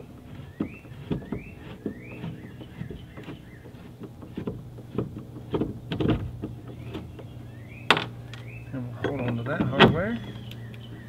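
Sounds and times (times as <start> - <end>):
bird singing whistled notes: 0.4 - 3.9, 6.7 - 11.0.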